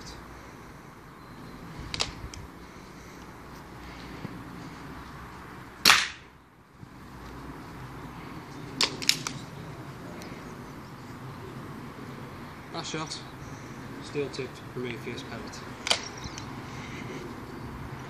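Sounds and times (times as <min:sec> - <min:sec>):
air rifle shot: 0:05.8 - 0:06.3.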